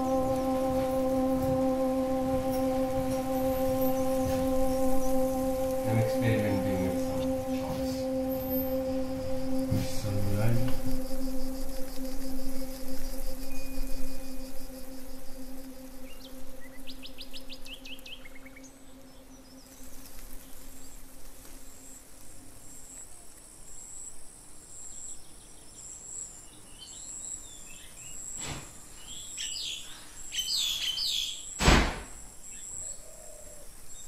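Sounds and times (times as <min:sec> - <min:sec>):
birds chirping: 0:00.0 - 0:21.8
low ringing tone: 0:00.0 - 0:21.8
faint high pulsing whine: 0:00.0 - 0:28.5
loud thump: 0:31.6 - 0:32.2.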